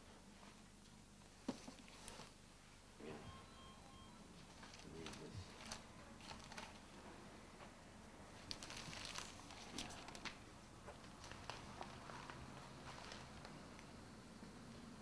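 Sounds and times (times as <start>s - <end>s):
newspaper rustling: 4.5s - 6.9s, 8.4s - 13.6s.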